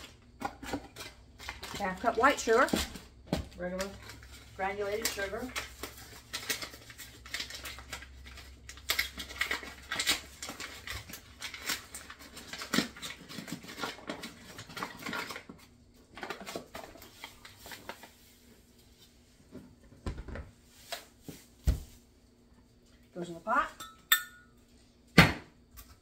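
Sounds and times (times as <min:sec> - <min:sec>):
paper bag crinkling: 0:03.8 - 0:18.5.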